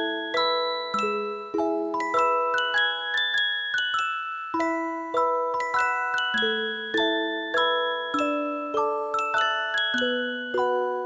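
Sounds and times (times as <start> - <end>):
gentle bell-like music: 0.0 - 11.0.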